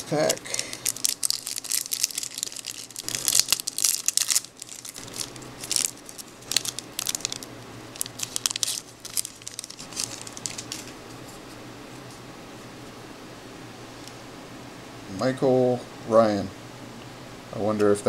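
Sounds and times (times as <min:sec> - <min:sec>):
plastic wrapper tearing and crinkling: 0:00.0 - 0:11.0.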